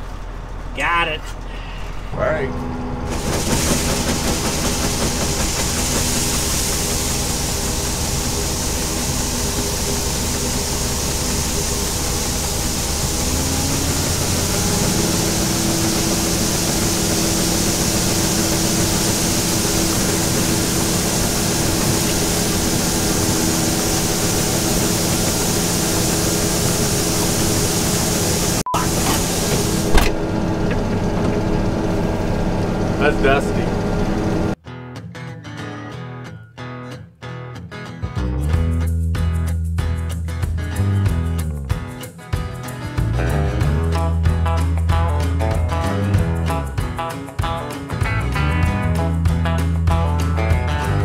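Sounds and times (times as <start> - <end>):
combine harvester engine running: 0.0 - 34.6.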